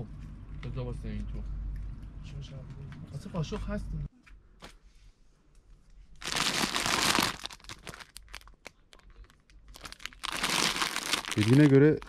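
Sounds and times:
crinkling and crackling: 6.2s - 12.0s.

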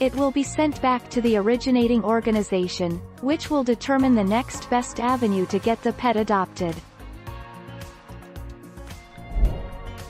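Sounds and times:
soft instrumental music with beat: 6.8s - 10.0s.

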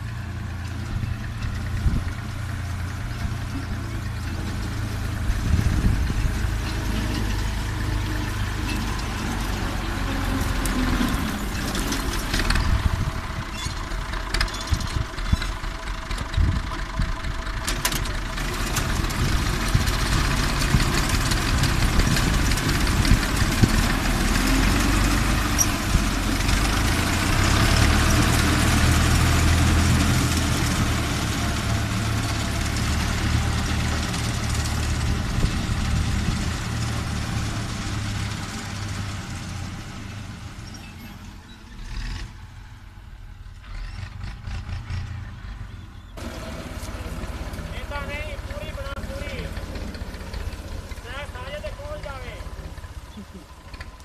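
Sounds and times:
tractor engine running: 0.0s - 54.0s.

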